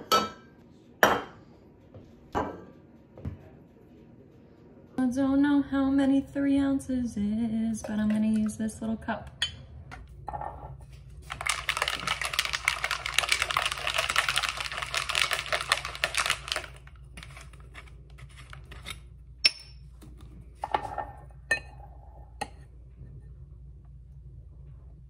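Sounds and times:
cocktail shaker rattling: 0:11.2 - 0:17.4
shaker clicks and knocks: 0:11.2 - 0:17.5.

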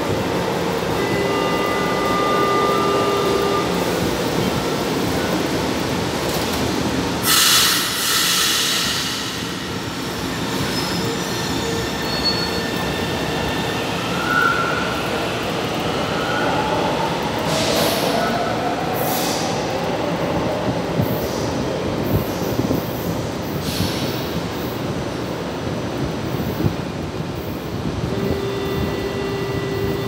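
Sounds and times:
sudden loud rush of noise: 0:07.2 - 0:09.8
train wheel squeals: 0:10.1 - 0:15.1.

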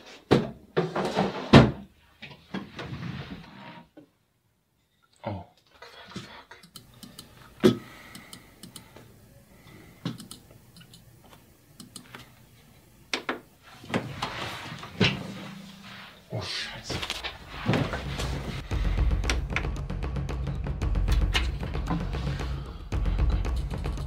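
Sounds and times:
rustling noise: 0:13.6 - 0:19.0.

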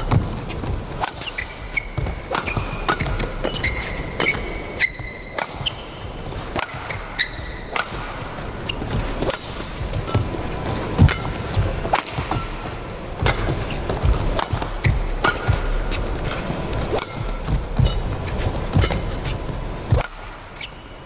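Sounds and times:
racket striking shuttlecock: 0:00.0 - 0:20.7
shoes squeaking on court: 0:00.0 - 0:21.0.

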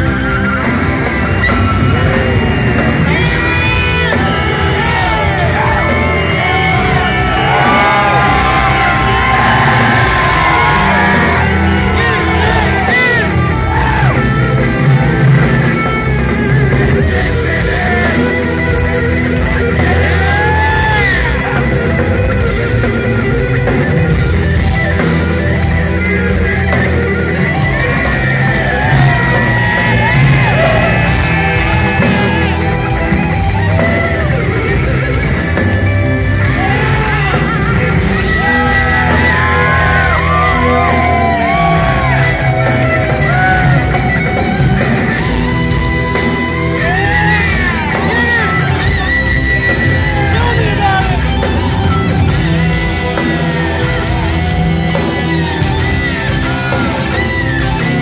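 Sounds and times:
bass and drums: 0:00.0 - 0:58.0
distorted electric guitar solo: 0:00.0 - 0:58.0
fans yelling: 0:00.0 - 0:58.0.

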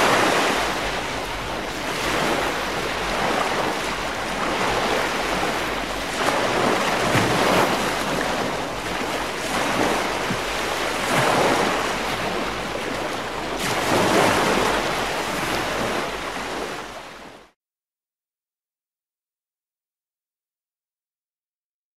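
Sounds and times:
waves breaking and washing in: 0:00.0 - 0:17.6.

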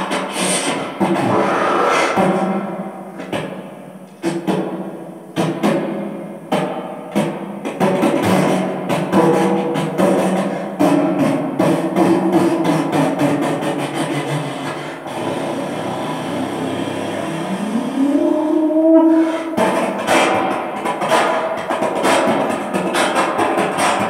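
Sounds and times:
held rising tone: 0:01.2 - 0:02.6, 0:16.3 - 0:19.5.

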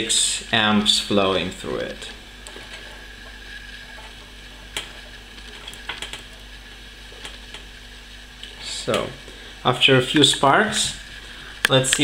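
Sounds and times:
faint steady hum: 0:00.0 - 0:12.0
clamp sparking snaps and crackles: 0:01.6 - 0:09.1, 0:11.6 - 0:12.0.

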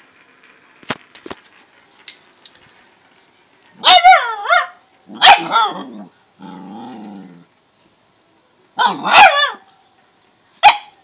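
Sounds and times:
puppy barking: 0:03.8 - 0:06.0, 0:08.8 - 0:09.7, 0:10.6 - 0:11.0.

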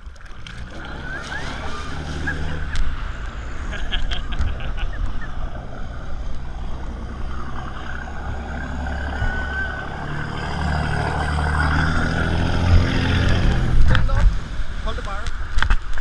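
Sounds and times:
boat engine running: 0:00.0 - 0:16.0.

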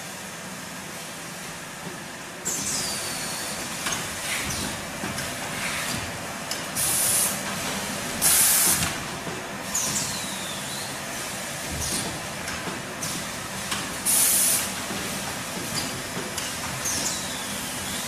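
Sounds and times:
machine running steadily: 0:00.0 - 0:18.0
pneumatic air hiss bursts: 0:06.8 - 0:07.4, 0:08.2 - 0:08.9, 0:14.0 - 0:14.7.

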